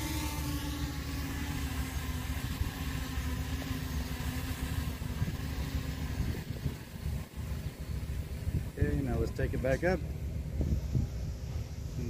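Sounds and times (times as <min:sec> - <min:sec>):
drone propellers humming: 0:00.0 - 0:12.0
wind on microphone: 0:04.0 - 0:12.0.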